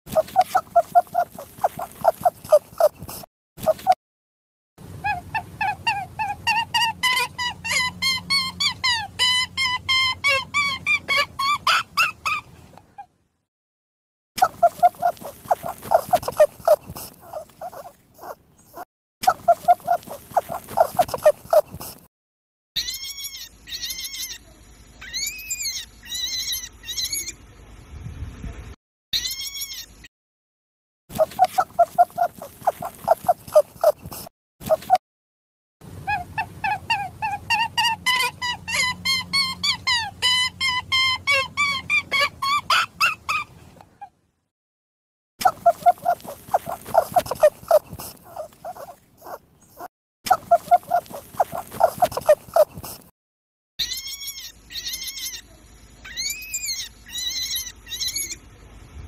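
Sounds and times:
rabbit high-pitched squeals: 0:00.1 - 0:04.0, 0:04.9 - 0:13.1, 0:14.4 - 0:22.0, 0:22.8 - 0:27.4, 0:29.2 - 0:30.1, 0:31.1 - 0:35.0, 0:36.0 - 0:44.1, 0:45.4 - 0:53.1, 0:53.8 - 0:58.5
rabbit short low calls: 0:00.1 - 0:04.0, 0:14.4 - 0:22.1, 0:31.1 - 0:35.0, 0:45.4 - 0:53.1.

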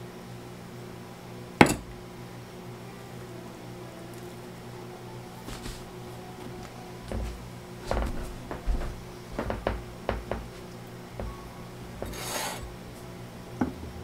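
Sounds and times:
pot knocking on metal sink: 0:01.6 - 0:01.9, 0:08.1 - 0:10.6.

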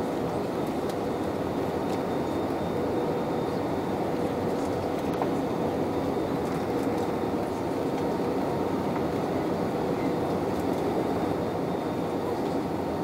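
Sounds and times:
jet engines droning: 0:00.0 - 0:13.0.

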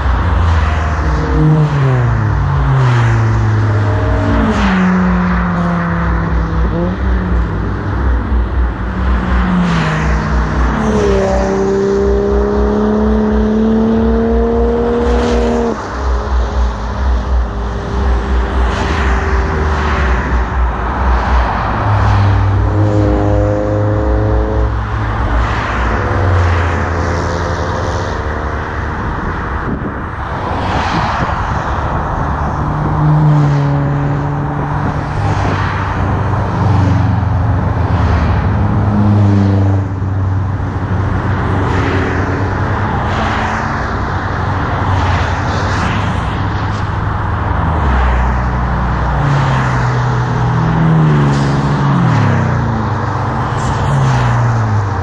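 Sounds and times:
cars driving past on highway: 0:00.0 - 0:55.0.

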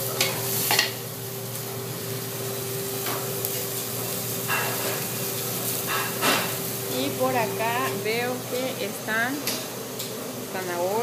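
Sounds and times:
constant hum: 0:00.0 - 0:11.0
frying hiss: 0:00.0 - 0:11.0.

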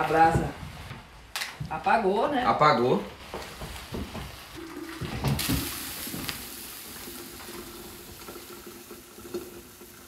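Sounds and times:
liquid pouring splashing trickle: 0:04.6 - 0:10.0.

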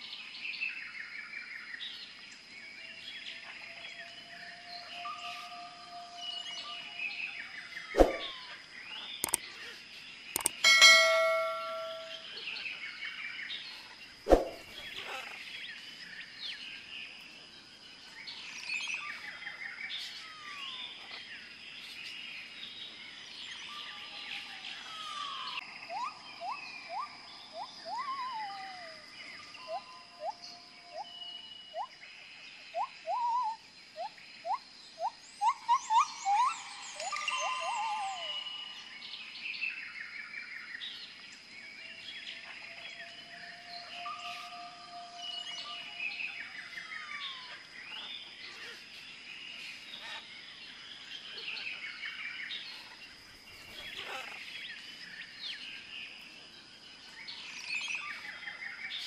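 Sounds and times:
birds chirping and calling: 0:04.4 - 0:12.3, 0:32.8 - 0:39.4, 0:42.3 - 0:55.6
rising whistled notes: 0:08.0 - 0:08.4, 0:10.4 - 0:12.3
ringing ding: 0:10.4 - 0:12.3.

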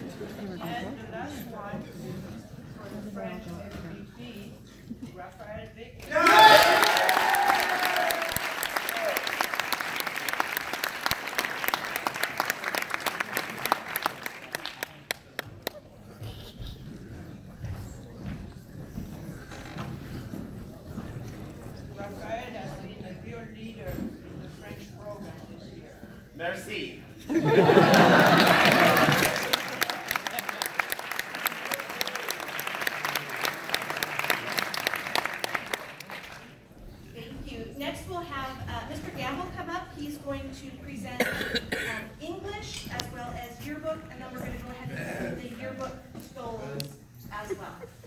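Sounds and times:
audience applauding: 0:06.1 - 0:15.8, 0:27.6 - 0:36.6.

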